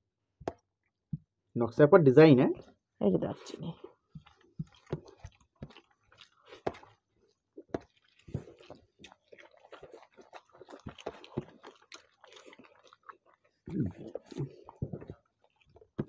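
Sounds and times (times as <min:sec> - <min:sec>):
fingers squishing rice and curry: 0:03.4 - 0:16.0
wet chewing and mouth smacks: 0:03.4 - 0:16.0.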